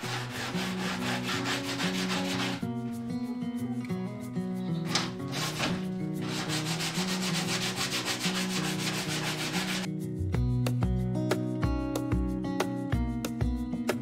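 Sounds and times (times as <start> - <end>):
sanding sponge rubbing wood: 0.0 - 2.7, 5.3 - 9.9
background music: 0.0 - 14.0.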